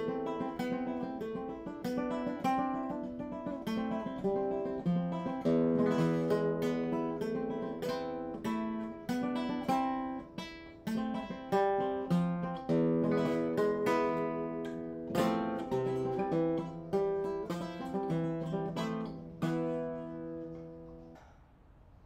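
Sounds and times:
solo guitar playing: 0.0 - 21.2.

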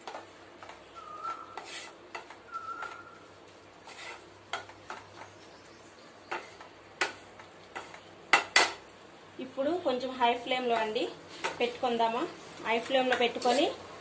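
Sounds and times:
light sizzle: 0.0 - 14.0
wooden spatula scraping a pan: 1.2 - 3.0, 3.8 - 5.2, 6.3 - 8.0
spatula clacking against pan: 6.3 - 8.8.

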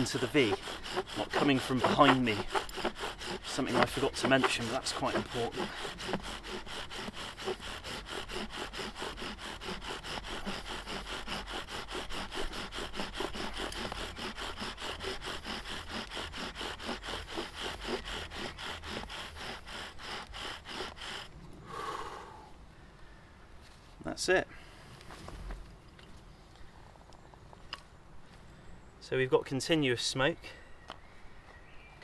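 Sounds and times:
bow drill spindle grinding: 0.0 - 21.3.

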